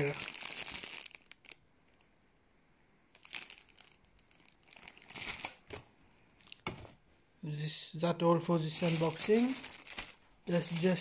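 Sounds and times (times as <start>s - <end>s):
plastic bag crinkling: 0.0s - 1.6s, 3.1s - 5.8s, 8.6s - 11.0s.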